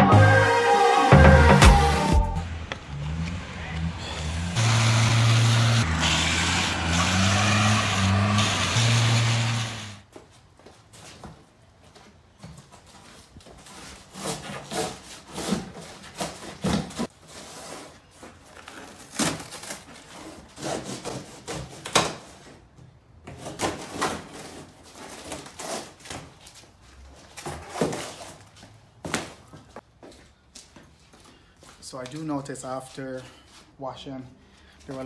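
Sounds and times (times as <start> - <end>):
knife cutting cardboard: 13.8 - 22.6
cardboard scraping and rustling: 23.3 - 28.5.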